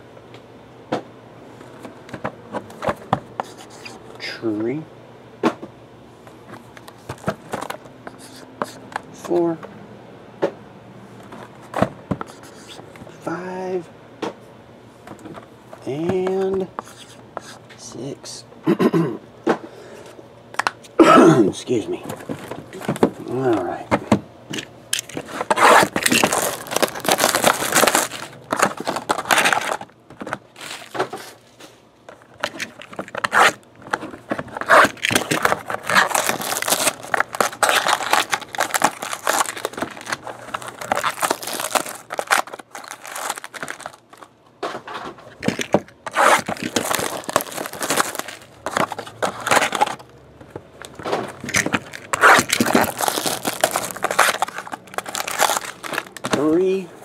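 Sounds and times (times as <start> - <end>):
plastic wrap tearing and crinkling: 25.0 - 31.4, 32.4 - 44.3, 45.3 - 50.1, 50.8 - 56.6.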